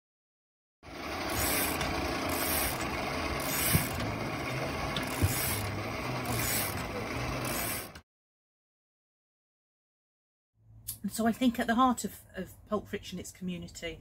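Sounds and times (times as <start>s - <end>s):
blender whirring: 0.8s - 8.0s.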